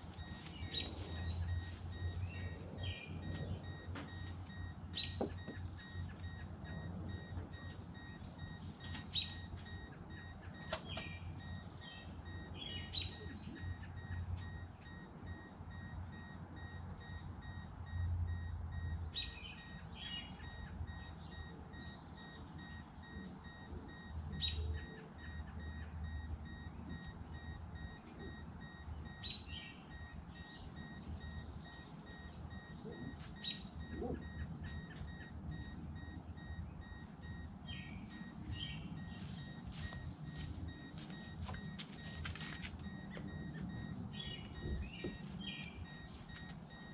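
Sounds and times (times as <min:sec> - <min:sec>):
bird calling: 0:00.0 - 0:06.8, 0:07.6 - 0:15.0
car warning chime beeping: 0:00.0 - 0:46.9
low steady hum: 0:00.0 - 0:46.9.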